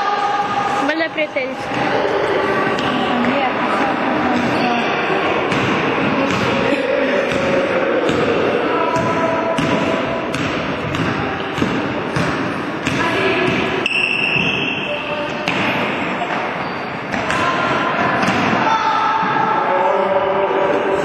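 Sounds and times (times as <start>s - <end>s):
echoing indistinct voices: 0.0s - 21.0s
basketball bouncing on wooden court: 5.5s - 6.6s, 7.3s - 13.8s.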